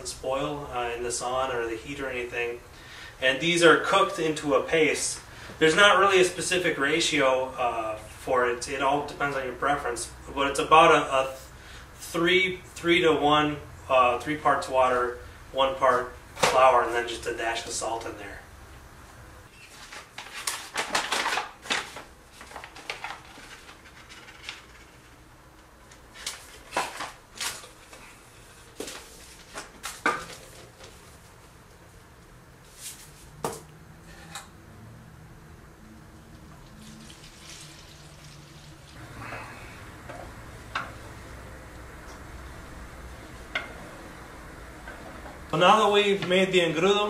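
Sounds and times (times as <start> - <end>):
water splashing in a pot: 36.6 - 39.0.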